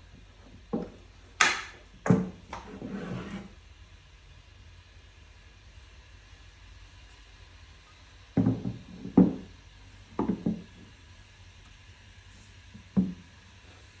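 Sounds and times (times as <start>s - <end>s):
wooden board knocking on workbench: 8.4s - 9.5s, 10.2s - 10.7s, 13.0s - 13.2s.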